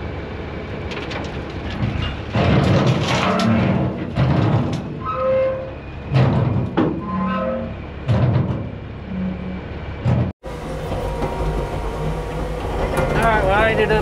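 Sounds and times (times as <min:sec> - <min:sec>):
metal clanks: 0:00.9 - 0:05.4
short squealing tones: 0:05.0 - 0:06.0, 0:07.0 - 0:07.8
diesel engine running: 0:08.7 - 0:14.0.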